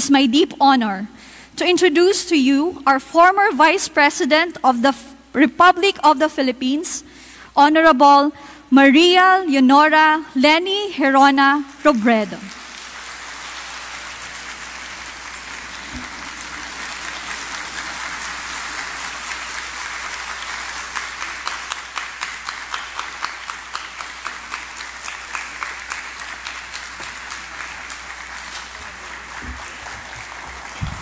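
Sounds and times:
sharp claps: 0:12.3 - 0:31.0
audience applauding: 0:12.4 - 0:31.0.

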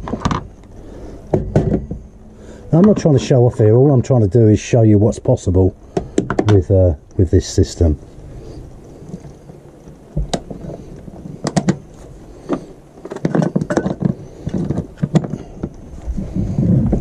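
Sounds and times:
kettle handling clicks and clatter: 0:12.5 - 0:15.5.

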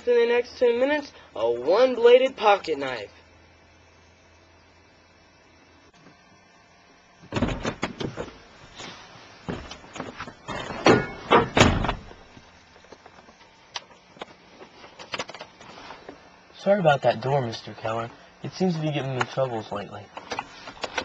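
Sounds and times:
door banging and rattling: 0:07.3 - 0:08.3, 0:10.5 - 0:12.2.

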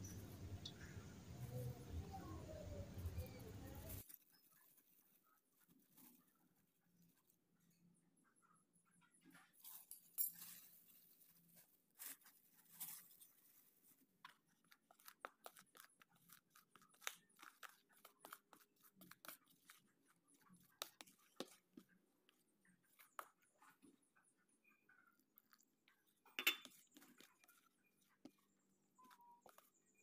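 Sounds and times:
fingers crunching flour mixture: 0:11.2 - 0:30.0.

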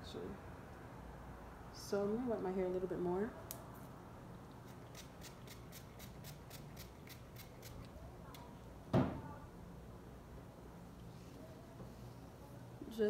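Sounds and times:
loud knock: 0:08.9 - 0:09.2.

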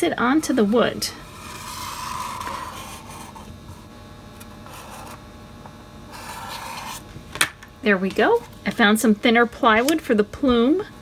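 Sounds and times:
marker scratching on wood: 0:00.4 - 0:03.5, 0:06.1 - 0:07.0.

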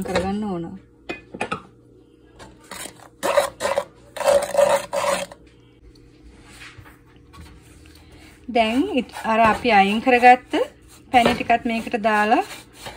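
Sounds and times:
wooden spatula scraping a pan: 0:02.7 - 0:05.4, 0:08.3 - 0:12.9.

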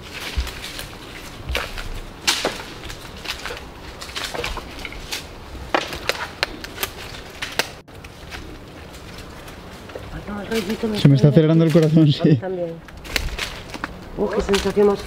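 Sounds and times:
sharp cracks and snaps: 0:00.0 - 0:10.0, 0:12.7 - 0:14.9
footsteps crunching over dry debris: 0:00.0 - 0:15.0.

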